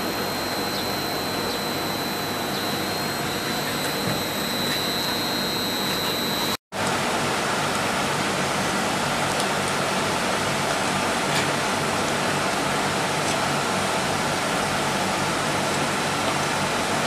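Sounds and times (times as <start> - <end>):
extruder machine humming: 0.0 - 6.6.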